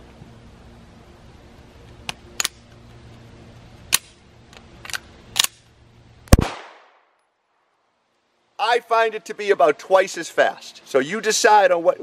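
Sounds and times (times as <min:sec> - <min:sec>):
handgun metallic clicks and clacks: 0:03.9 - 0:05.7
gunshot crack with ringing tail: 0:06.3 - 0:07.1.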